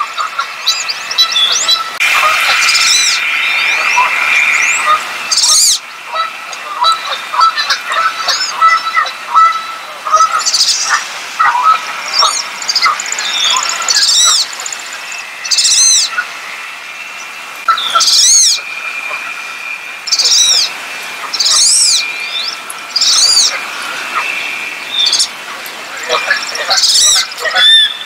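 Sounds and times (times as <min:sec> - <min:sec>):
ducks whistling calls: 0:00.0 - 0:28.0.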